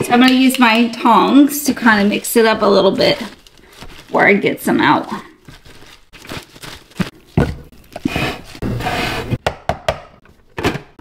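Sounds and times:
leafy greens rustling: 0:01.3 - 0:08.6.

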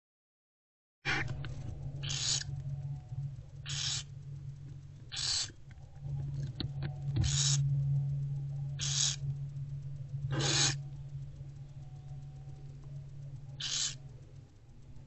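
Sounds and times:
steady low hum: 0:01.1 - 0:15.0
owlets hissing begging calls: 0:02.0 - 0:02.5, 0:03.6 - 0:04.2, 0:05.1 - 0:05.5, 0:07.2 - 0:07.7, 0:08.7 - 0:09.3, 0:10.2 - 0:10.8, 0:13.5 - 0:14.1.

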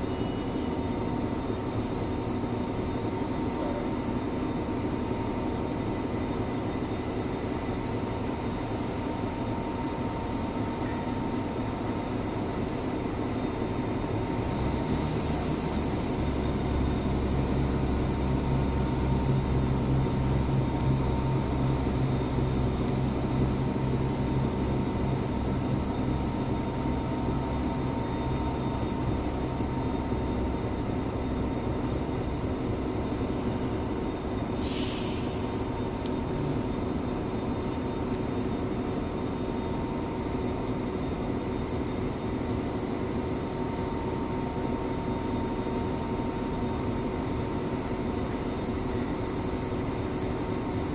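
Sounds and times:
diesel train engine drone: 0:00.0 - 0:50.9
air hiss: 0:34.6 - 0:35.6.

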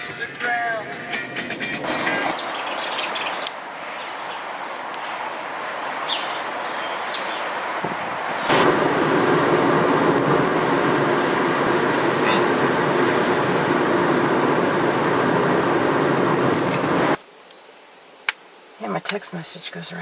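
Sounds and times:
bird chirps: 0:02.3 - 0:05.2, 0:06.0 - 0:07.5
car driving on wet road: 0:03.2 - 0:17.2.

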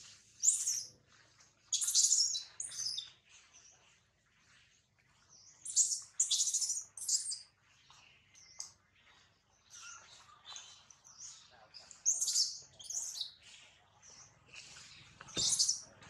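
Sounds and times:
baby monkey squeaking calls: 0:15.4 - 0:15.8.

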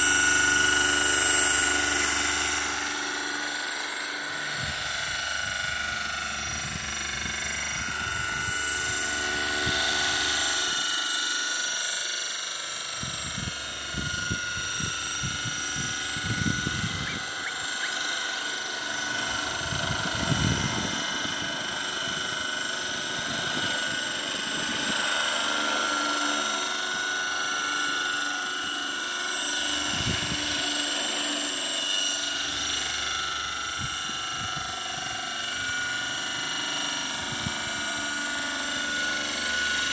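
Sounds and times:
model helicopter whine: 0:00.0 - 0:39.9
wind on microphone: 0:04.5 - 0:09.9, 0:13.0 - 0:17.4, 0:19.4 - 0:25.0, 0:29.8 - 0:30.6, 0:33.6 - 0:36.0, 0:37.2 - 0:37.8.

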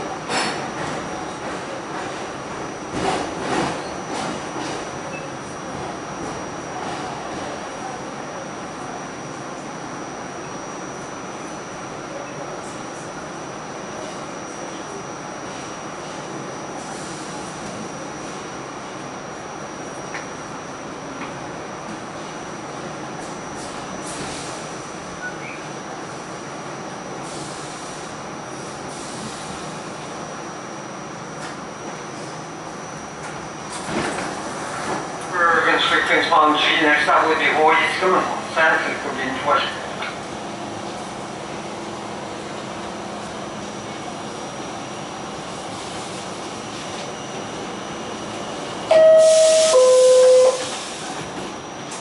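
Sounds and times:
subway car wheels rumbling: 0:00.0 - 0:52.0
high whine: 0:48.9 - 0:50.9.

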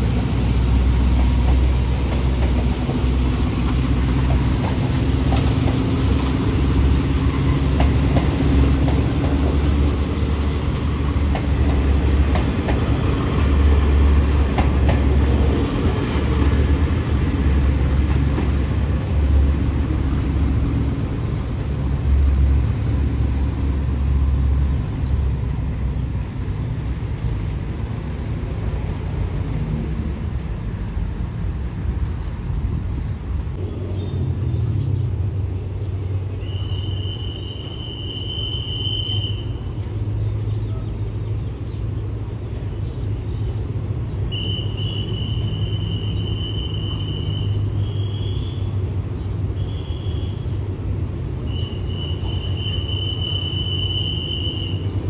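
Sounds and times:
train wheels rumbling on rail: 0:00.0 - 0:55.0
high-pitched wheel squeals: 0:00.3 - 0:02.1, 0:02.8 - 0:12.6, 0:30.8 - 0:33.5.

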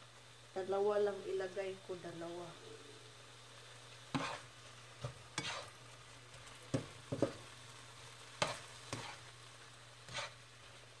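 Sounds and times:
meat sizzling in a pan: 0:00.0 - 0:11.0
utensil scraping a pan: 0:04.1 - 0:05.8, 0:08.4 - 0:09.3, 0:10.1 - 0:10.4.

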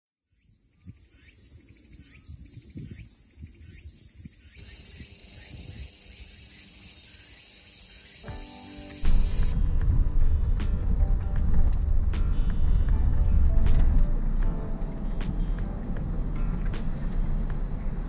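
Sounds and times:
cicadas shrilling: 0:00.4 - 0:09.6
music: 0:07.1 - 0:18.0.

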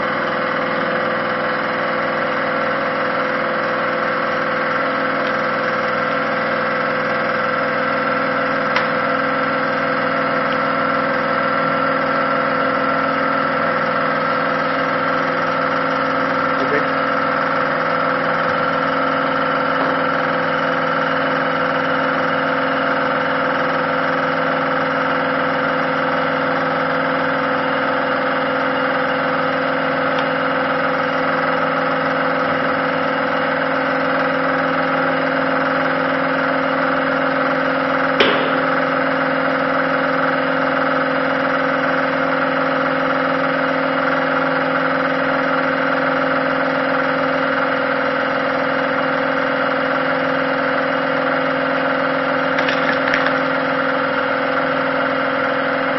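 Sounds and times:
hydraulic power unit droning hum: 0:00.0 - 0:55.9
sharp knock: 0:38.2 - 0:39.1.

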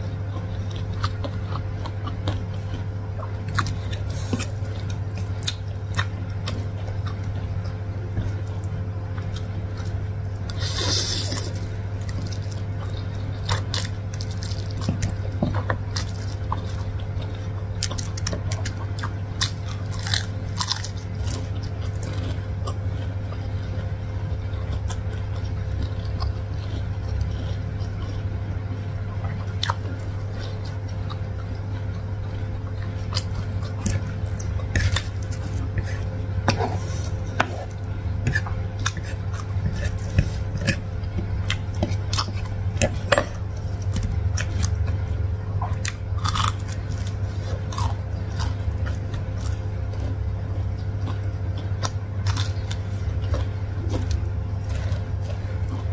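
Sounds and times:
chewing noodles: 0:00.0 - 0:55.9
low steady hum: 0:00.0 - 0:55.9.

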